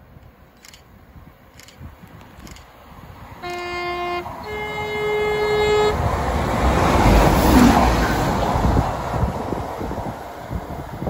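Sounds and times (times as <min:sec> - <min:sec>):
train passing rumble: 0:00.0 - 0:11.0
train two-tone horn: 0:03.4 - 0:06.2.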